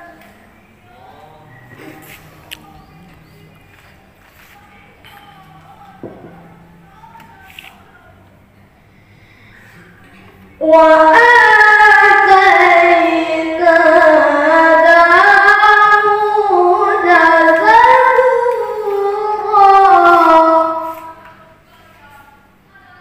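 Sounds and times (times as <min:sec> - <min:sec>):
high voice reciting melodically: 0:09.8 - 0:23.0.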